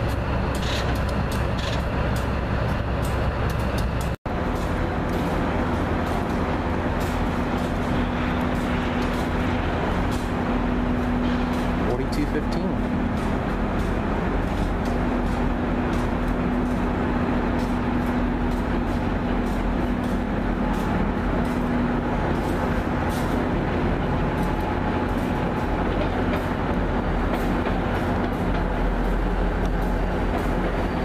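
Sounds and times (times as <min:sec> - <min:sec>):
diesel locomotive engine drone: 0:00.0 - 0:31.0
train wheels rumbling on rails: 0:00.0 - 0:31.0.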